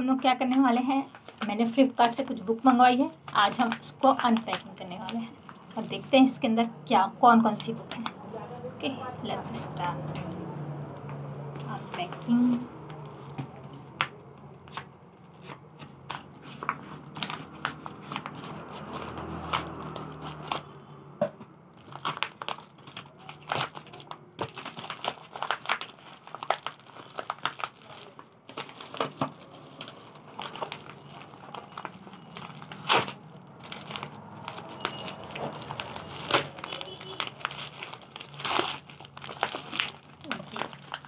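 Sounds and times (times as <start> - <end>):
paper crinkling and rustling: 0.4 - 6.4, 11.6 - 20.7, 21.8 - 41.0
scissors cutting bag: 21.9 - 41.0.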